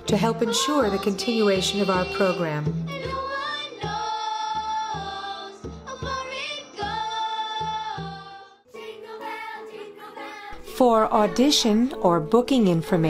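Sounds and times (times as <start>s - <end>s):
children's choir singing: 0.0s - 11.9s
hand-drum beat: 0.6s - 7.0s.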